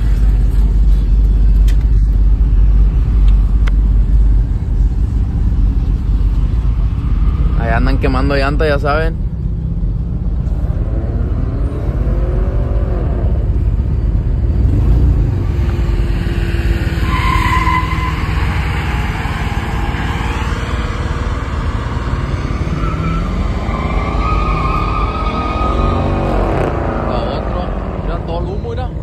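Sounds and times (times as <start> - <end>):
tires squealing: 10.5 - 29.0
truck engine revving hard: 14.5 - 28.2.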